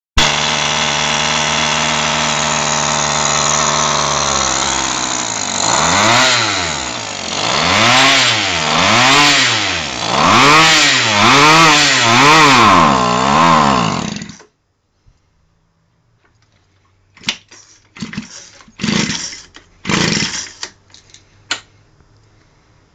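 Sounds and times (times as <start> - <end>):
two-stroke engine revving: 0.2 - 14.4, 18.0 - 20.6.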